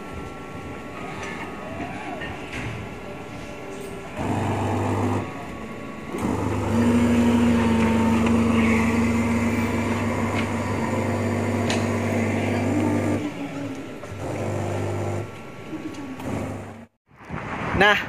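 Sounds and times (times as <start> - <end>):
steady higher tone: 4.0 - 15.3
electric machine humming: 4.0 - 17.0.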